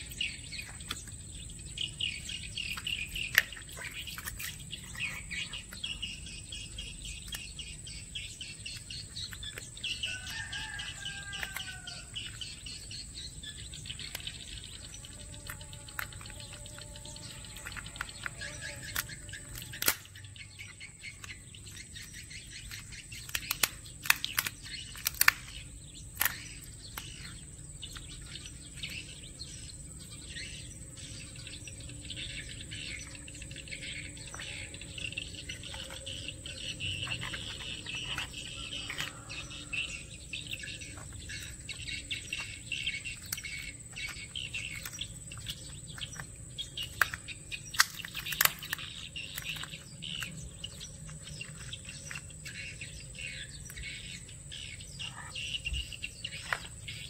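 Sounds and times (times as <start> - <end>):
birds chirping: 0.0 - 57.0
high insect drone: 0.0 - 57.0
crab shell cracking: 8.7 - 12.4, 14.0 - 27.4, 35.6 - 39.8, 40.9 - 52.6.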